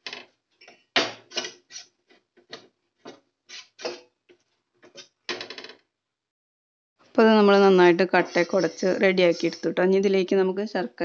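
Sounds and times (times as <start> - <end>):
spoon scraping metal pot: 1.2 - 2.0, 3.5 - 4.1, 7.6 - 9.8.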